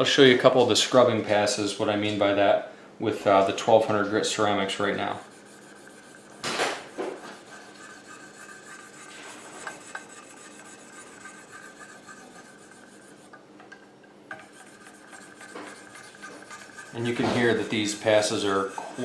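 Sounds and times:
sharpening stones rasping on steel: 7.4 - 13.4, 14.3 - 19.0.

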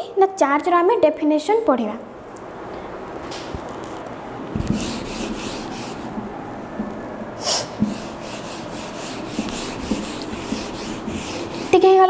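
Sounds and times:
eraser wiping whiteboard: 4.6 - 6.2, 7.4 - 12.0.

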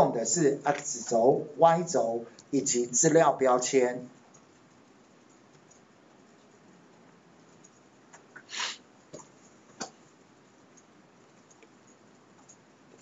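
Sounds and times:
short hissing burst: 8.4 - 8.8.

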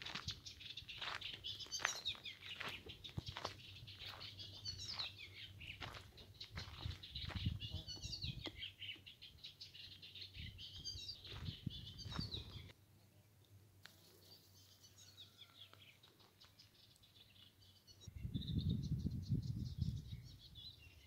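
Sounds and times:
small birds chirping: 0.0 - 21.0
wind rumbling on microphone: 5.8 - 8.5, 10.4 - 12.7, 18.1 - 21.0.

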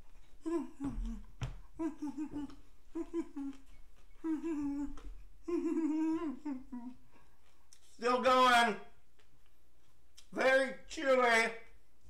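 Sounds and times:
man groaning and humming: 0.4 - 3.6, 4.2 - 7.0.

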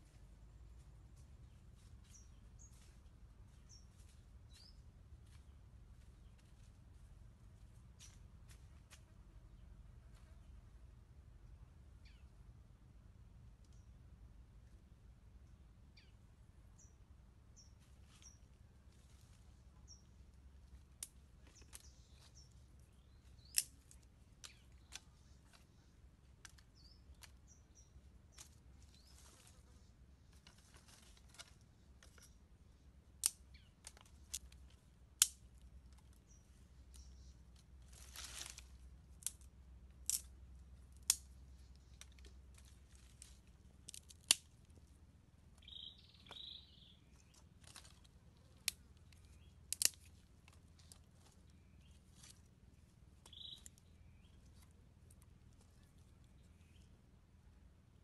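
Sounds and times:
faint bird chirps: 12.0 - 12.4, 45.6 - 48.5, 53.2 - 54.7
dry sticks snapping: 20.6 - 29.6, 30.3 - 32.4, 33.1 - 44.9, 47.2 - 52.5, 53.2 - 56.4
dry leaves rustling: 28.3 - 32.3, 33.8 - 44.9, 47.2 - 54.6.

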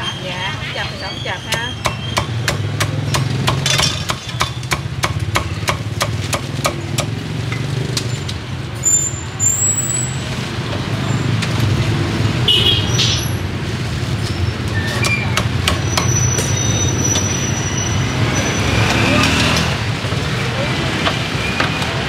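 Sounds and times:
street traffic rumble: 0.0 - 22.0
cleaver chopping on a block: 1.8 - 7.2.

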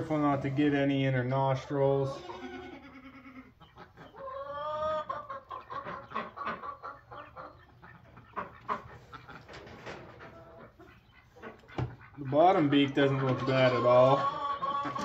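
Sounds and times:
hen clucking: 0.0 - 15.0.

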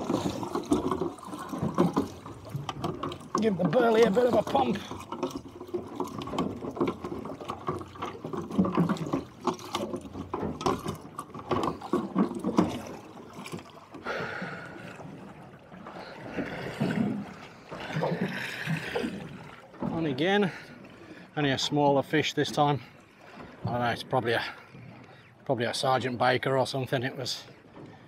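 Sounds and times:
water splashing against boat hull: 0.0 - 28.0.

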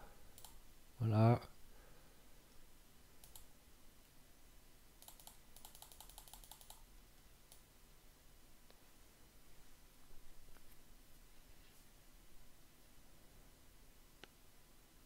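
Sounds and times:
faint keyboard typing: 0.3 - 0.7, 3.2 - 3.6, 5.0 - 7.7.

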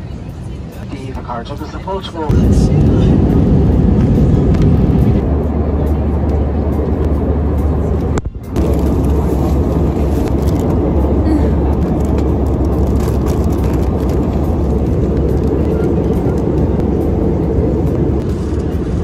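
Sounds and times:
airliner cabin drone: 0.0 - 19.0
crisp packet crinkling: 8.6 - 15.8.

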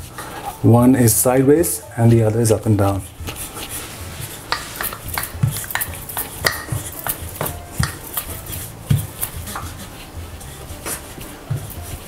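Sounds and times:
rolling pin knocking on countertop: 4.5 - 8.2.

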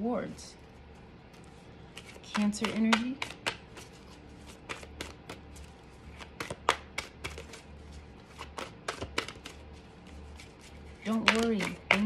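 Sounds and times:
cards being shuffled: 1.2 - 12.0.

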